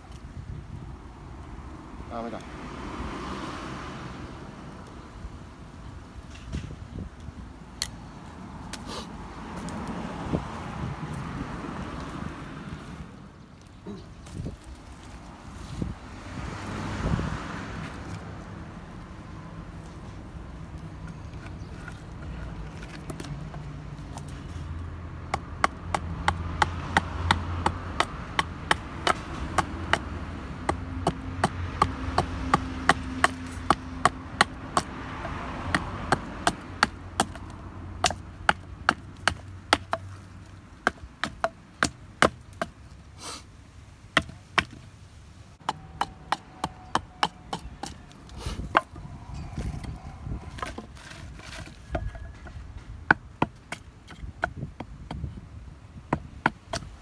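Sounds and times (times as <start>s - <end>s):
hatchet chopping wood: 25.2s - 42.8s, 44.1s - 44.8s, 45.6s - 49.0s, 49.8s - 55.4s, 56.0s - 57.0s.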